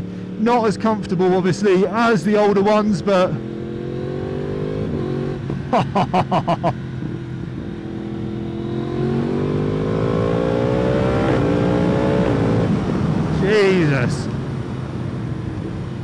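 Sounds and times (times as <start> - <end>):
motorcycle engine revving: 3.1 - 13.4.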